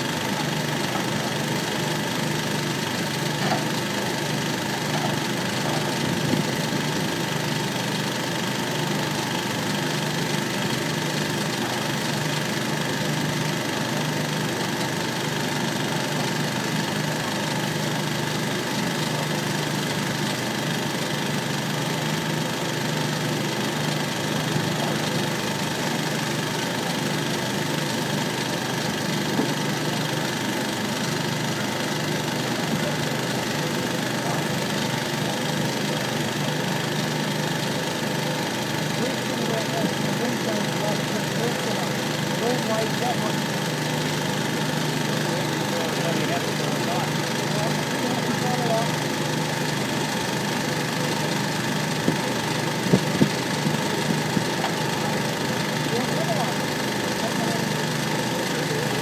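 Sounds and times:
heavy engine idling: 0.0s - 59.0s.

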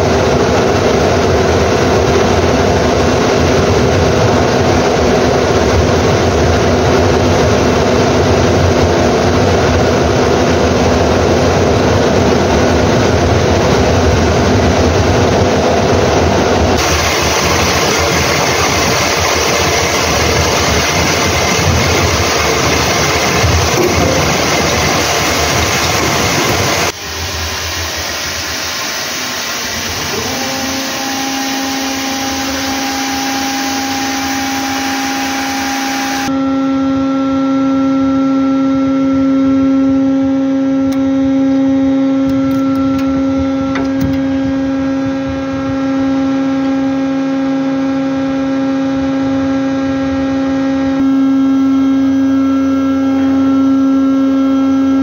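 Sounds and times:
winch motor humming and whining: 0.0s - 55.0s
rushing noise: 10.8s - 36.4s.

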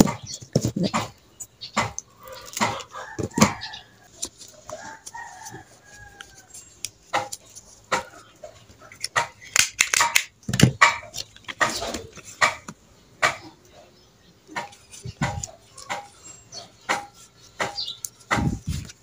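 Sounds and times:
chickens clucking: 0.0s - 9.5s, 10.8s - 19.0s
rooster crowing: 2.2s - 6.6s
banana leaves rustling: 2.2s - 13.4s, 14.5s - 19.0s.

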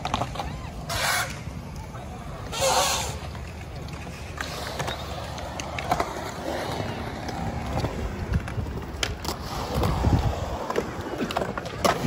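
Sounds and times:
skateboard clacks: 0.0s - 12.0s
skateboard wheels rolling on concrete: 0.0s - 12.0s.

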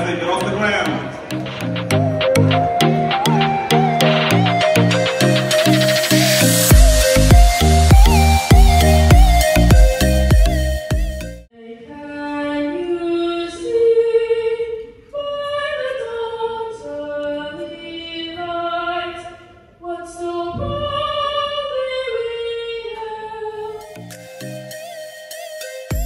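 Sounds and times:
woman singing into a microphone: 11.6s - 24.0s.

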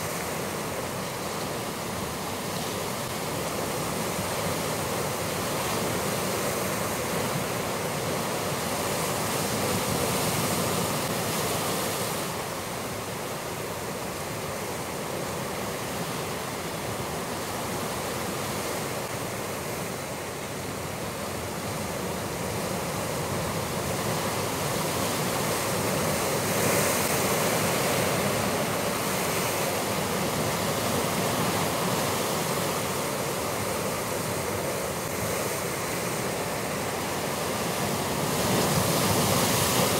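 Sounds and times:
surf breaking on rocky shore: 21.6s - 39.9s.

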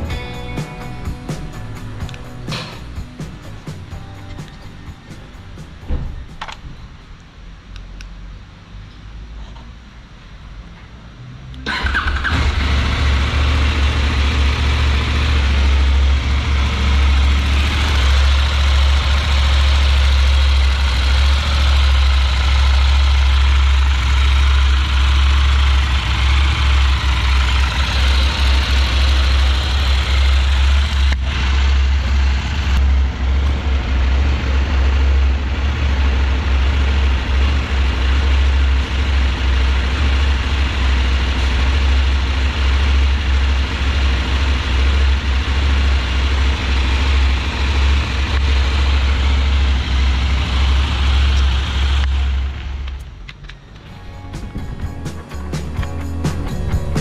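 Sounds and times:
electric starter cranking engine: 11.6s - 13.1s
motorcycle engine idling: 12.3s - 53.0s.

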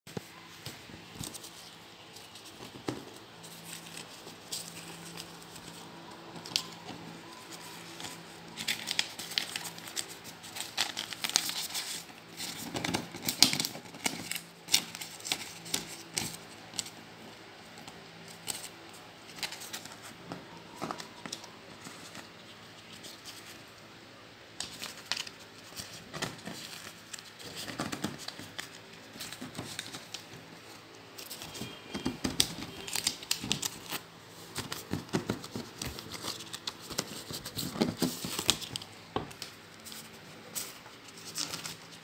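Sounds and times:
plastic banknotes crinkling: 0.7s - 23.8s, 24.5s - 42.0s.

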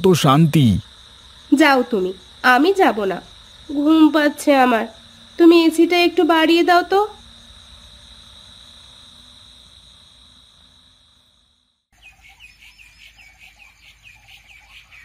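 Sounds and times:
crickets chirring: 0.0s - 15.0s
small birds chirping: 11.9s - 15.0s.

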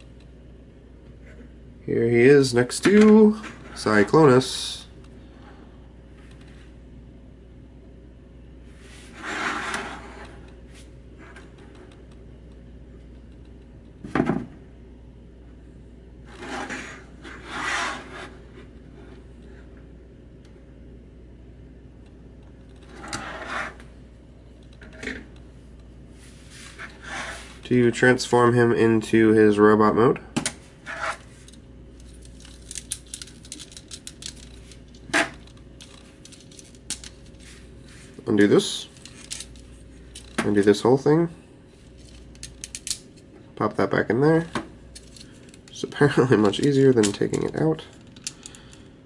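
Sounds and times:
plastic figures sliding on table: 8.8s - 11.4s, 16.3s - 18.4s, 22.9s - 23.9s, 26.2s - 27.6s
plastic toy parts clicking: 32.3s - 34.6s.

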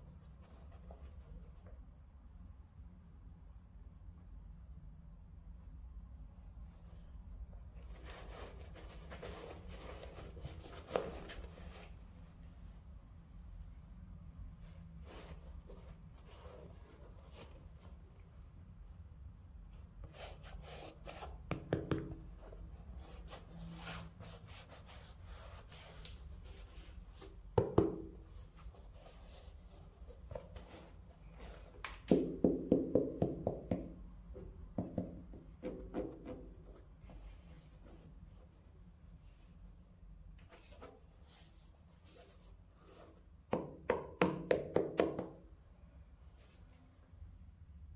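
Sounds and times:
rustling shoe box and shoes: 7.8s - 12.0s.

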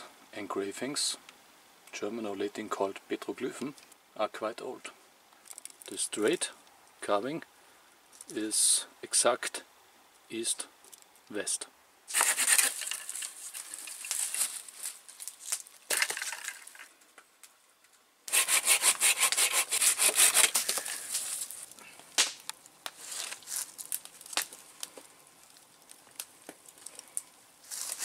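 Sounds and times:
hand saw cutting wood: 12.1s - 13.0s, 18.3s - 21.0s.

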